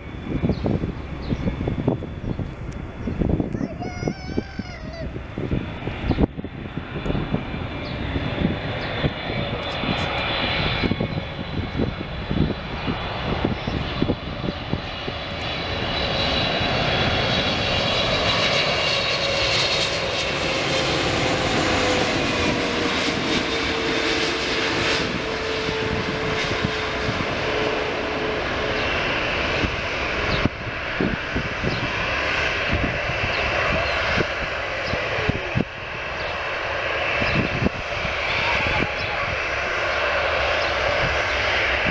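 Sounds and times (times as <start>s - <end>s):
jet engines landing: 0.0s - 41.9s.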